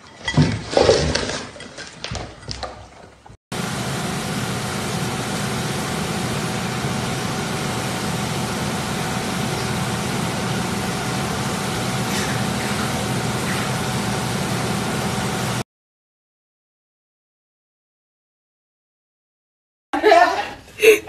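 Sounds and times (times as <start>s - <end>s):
faint high whine: 3.6s - 15.6s
machine hum and whoosh: 3.6s - 15.6s.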